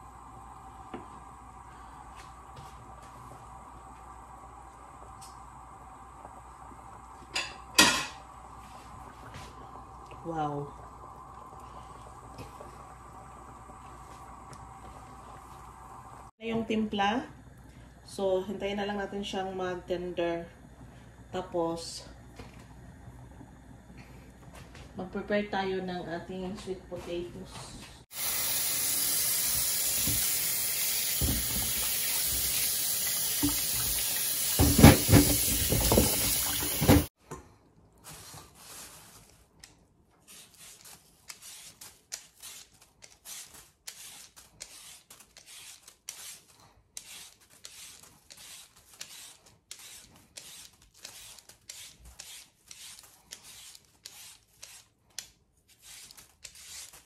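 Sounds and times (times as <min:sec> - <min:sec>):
peeler scraping skin: 0:39.6 - 0:57.0.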